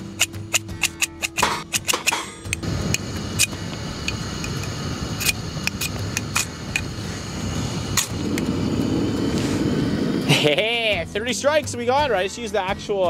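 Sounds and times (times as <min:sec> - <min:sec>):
knife scraping ferrocerium rod: 0:00.0 - 0:02.6
wind on microphone: 0:02.6 - 0:10.6.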